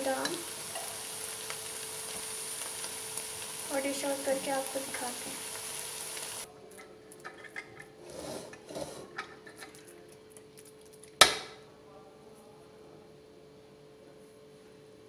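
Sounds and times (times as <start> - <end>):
metal spoon scraping a plate: 7.2 - 9.8.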